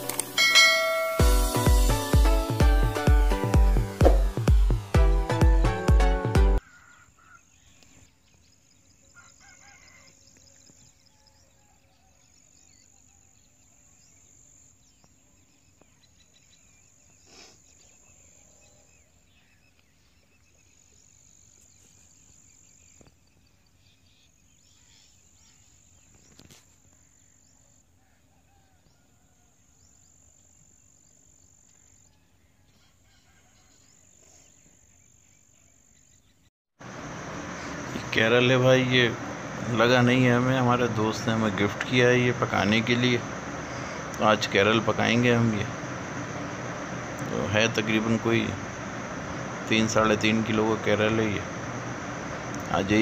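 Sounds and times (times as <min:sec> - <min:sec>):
high-pitched insect call: 0:36.8 - 0:53.0.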